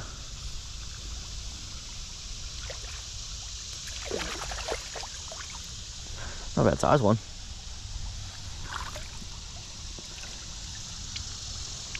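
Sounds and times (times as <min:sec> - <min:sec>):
stream running over riffles: 0:00.3 - 0:11.9
fish splashing at surface: 0:03.9 - 0:05.5.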